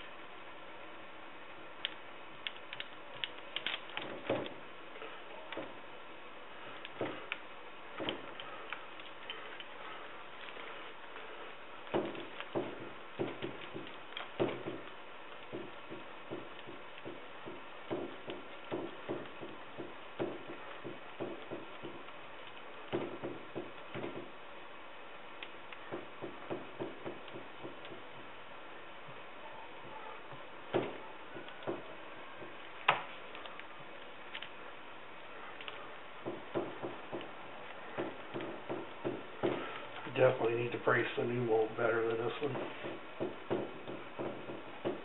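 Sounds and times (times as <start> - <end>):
laminating tool tapping wet fiberglass: 8.0 - 9.4, 11.9 - 24.4, 42.1 - 45.0.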